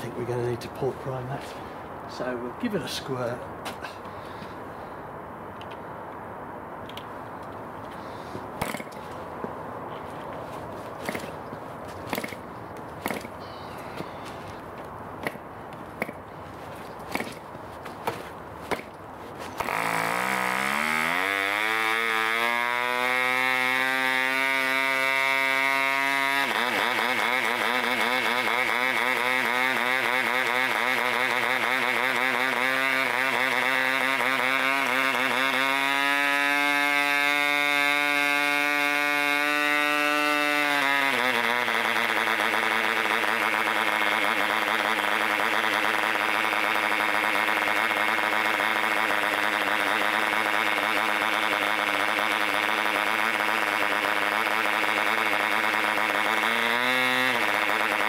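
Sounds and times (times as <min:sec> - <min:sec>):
model diesel engine running: 0:00.0 - 0:01.8, 0:16.0 - 0:58.0.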